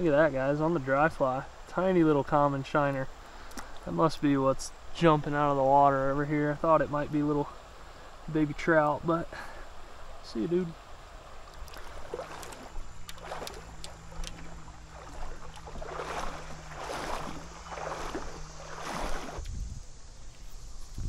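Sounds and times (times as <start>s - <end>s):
wading through shallow water: 5.0s - 19.6s.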